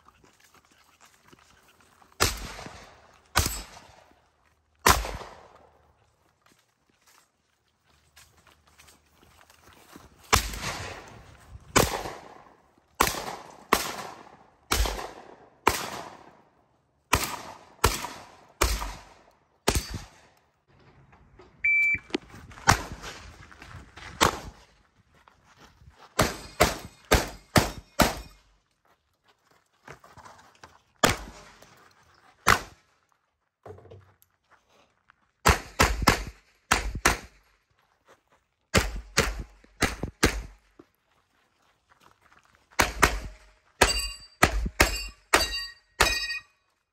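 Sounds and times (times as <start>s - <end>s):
gunshots: 2.2s - 4.0s, 4.8s - 5.5s, 10.3s - 11.1s, 11.7s - 16.4s, 17.1s - 20.3s, 26.2s - 28.4s, 31.0s - 31.6s, 35.4s - 37.4s, 38.8s - 40.6s, 42.8s - 46.3s
shot timer beep: 21.6s - 22.1s.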